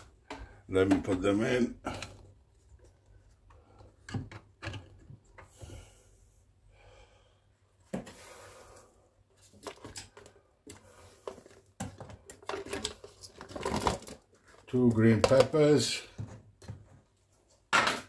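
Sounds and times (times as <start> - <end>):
rustling handling noise: 9.3 - 17.7.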